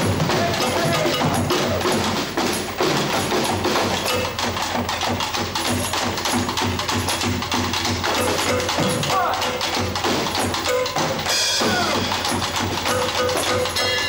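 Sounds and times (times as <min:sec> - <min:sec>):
drums beating: 0:00.0 - 0:14.0
live band playing: 0:00.0 - 0:14.0.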